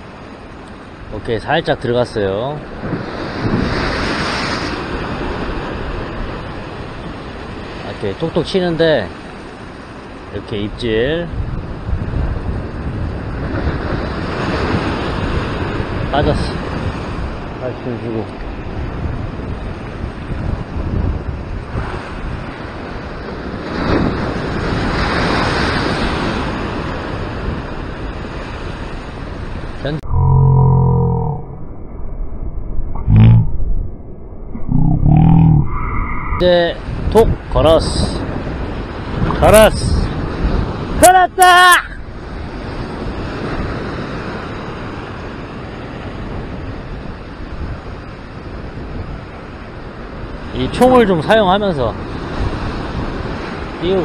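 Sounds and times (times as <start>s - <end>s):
surf crashing on rocks: 0.0s - 29.8s
wind buffeting microphone: 2.6s - 7.8s, 11.2s - 30.2s, 31.4s - 41.0s, 42.0s - 50.6s, 52.0s - 53.8s.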